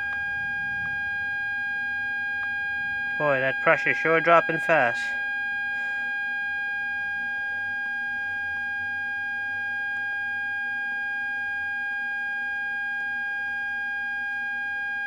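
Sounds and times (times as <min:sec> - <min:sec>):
high-pitched whine: 0:00.0 - 0:08.8.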